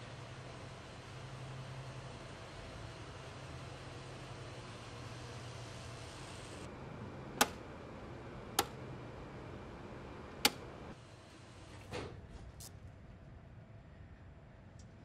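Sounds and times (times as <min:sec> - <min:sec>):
low background hum: 0:00.0 - 0:15.0
circuit breaker clicks: 0:07.3 - 0:07.7, 0:08.5 - 0:08.9, 0:10.3 - 0:10.8.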